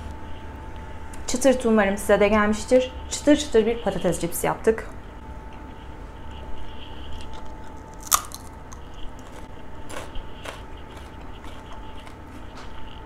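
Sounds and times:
crunching potato chip: 0:07.2 - 0:12.2.

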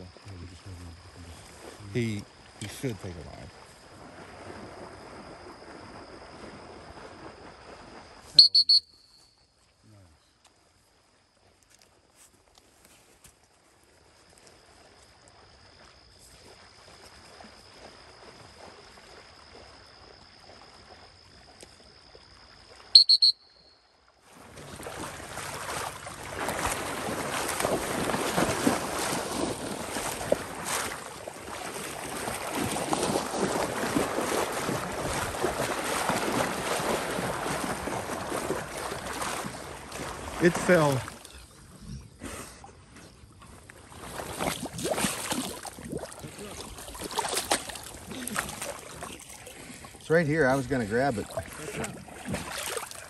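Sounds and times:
sloshing through water: 0:00.5 - 0:09.1, 0:24.2 - 0:41.8, 0:42.7 - 0:53.0
shrill whistle blasts: 0:08.4 - 0:09.5, 0:22.9 - 0:23.9.

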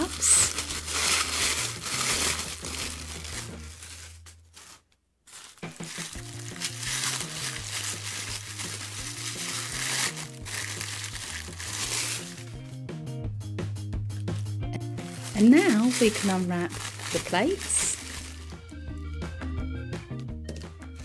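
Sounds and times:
background music: 0:00.0 - 0:04.0, 0:05.6 - 0:21.0
tissue paper crinkling: 0:00.0 - 0:12.8, 0:14.2 - 0:18.8.

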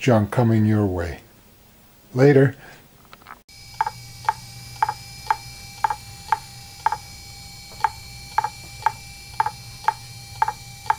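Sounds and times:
low steady hum: 0:02.8 - 0:10.9
hard drive clicking: 0:03.7 - 0:10.9.

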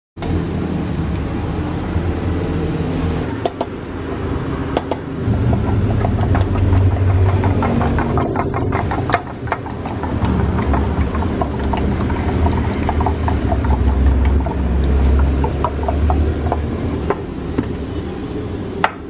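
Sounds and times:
low engine-like hum: 0:00.2 - 0:19.0
spatula beating eggs in metal mug: 0:05.5 - 0:16.8.

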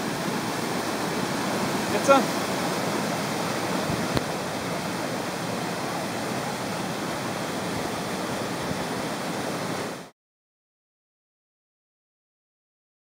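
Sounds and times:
waterfall rushing: 0:00.0 - 0:10.1.

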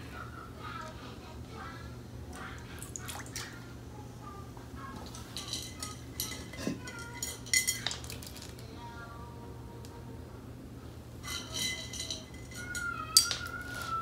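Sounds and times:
kibble clinking against metal bowl: 0:05.1 - 0:08.5, 0:11.2 - 0:14.0.

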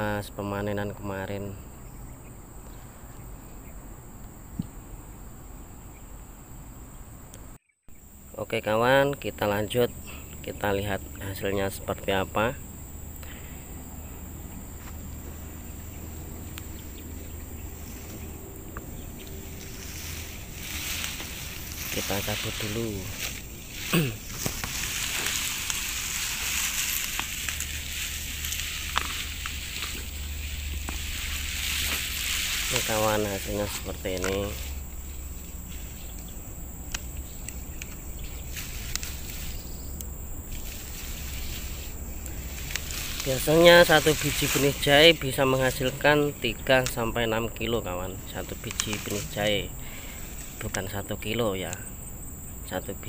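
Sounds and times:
insect drone: 0:00.0 - 0:53.0
steady low rumble: 0:01.6 - 0:53.0
hands rustling through soil: 0:14.2 - 0:51.0
leaves brushing clicks: 0:14.4 - 0:51.9
sharp crackles and clicks: 0:17.8 - 0:34.8.

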